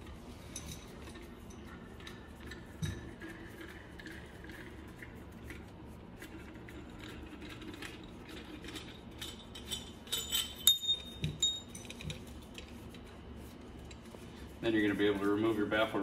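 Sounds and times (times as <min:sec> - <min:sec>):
metal parts clinking together: 0:08.7 - 0:12.7.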